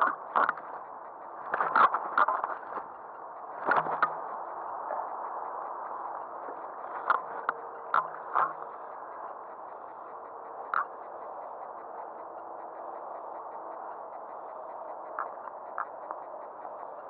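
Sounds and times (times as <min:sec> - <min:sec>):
steady rushing background: 0:00.0 - 0:17.0.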